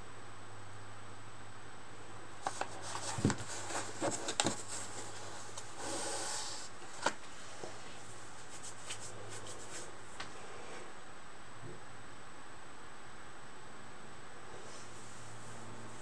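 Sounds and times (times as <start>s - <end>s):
sliding rub on table: 2.5s - 6.7s.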